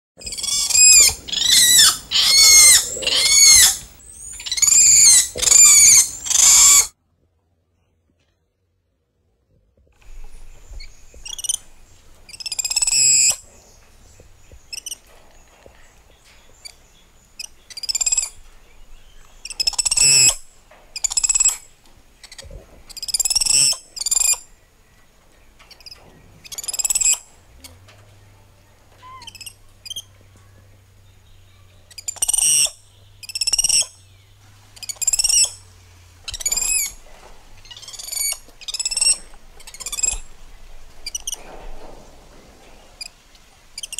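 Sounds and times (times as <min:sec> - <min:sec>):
shrill animal calls: 0:00.2 - 0:06.9, 0:10.2 - 0:24.5, 0:25.6 - 0:27.8, 0:28.9 - 0:30.2, 0:31.5 - 0:34.0, 0:34.6 - 0:42.1
faint low hum: 0:00.2 - 0:43.9.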